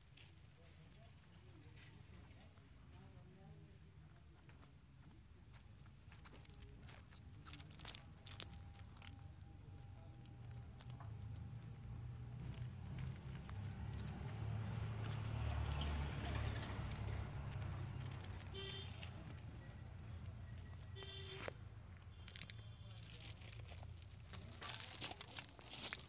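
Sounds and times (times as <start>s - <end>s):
crickets chirping: 0.0s - 26.0s
animals scuffling on gravel: 5.5s - 26.0s.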